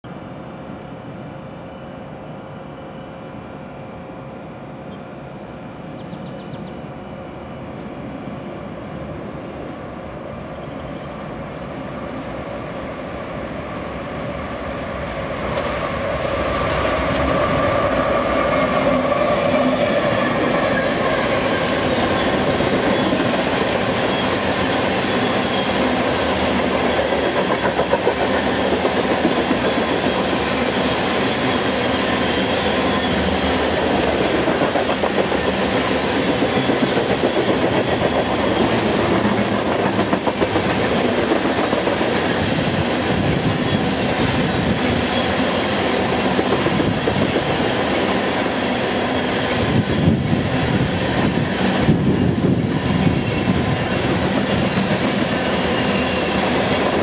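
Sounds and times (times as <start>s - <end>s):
diesel locomotive passing: 0.1s - 57.0s
train wheels on rails: 5.7s - 57.0s.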